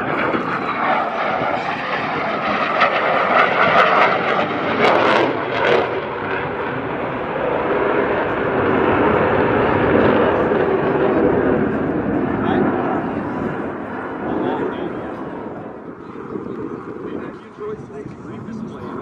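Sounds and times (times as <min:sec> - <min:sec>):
jet engine rumble in afterburner: 0:00.0 - 0:19.0.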